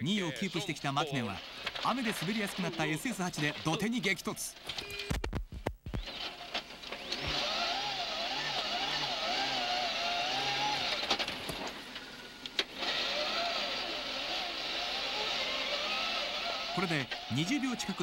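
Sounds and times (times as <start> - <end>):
gravel and road noise: 0.0 - 4.6, 6.0 - 18.0
rally car engine revving: 6.1 - 18.0.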